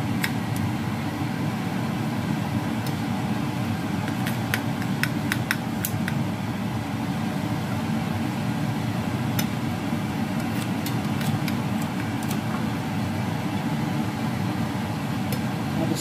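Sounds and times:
low mechanical hum: 0.0s - 16.0s.

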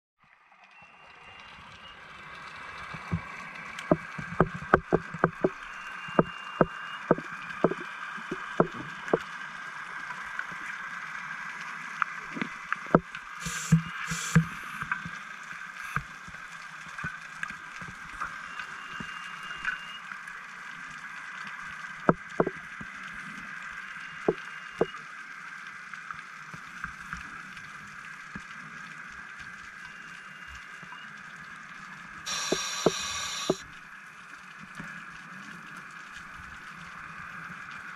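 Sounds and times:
sharp clicks and knocks: 3.8s - 5.6s, 6.2s - 9.2s, 22.0s - 22.6s, 32.3s - 33.6s
underwater hiss: 13.3s - 15.0s, 32.3s - 33.6s
short hissing bursts: 13.4s - 14.8s, 32.3s - 33.6s.

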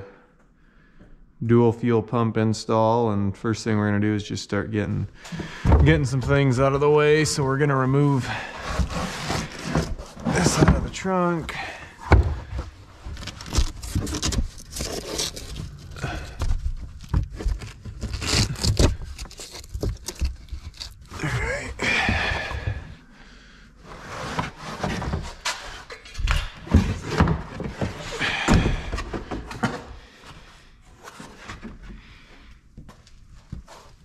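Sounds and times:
scraping and rustling: 5.2s - 23.0s, 23.8s - 32.3s.

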